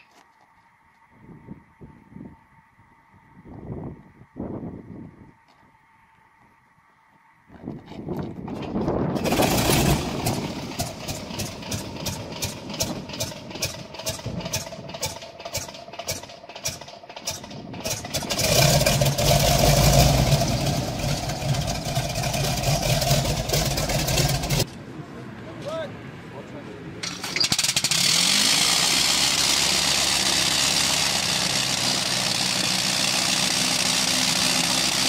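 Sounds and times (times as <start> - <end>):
radial aircraft engine starting and running: 8.3 - 24.7, 27.0 - 35.0.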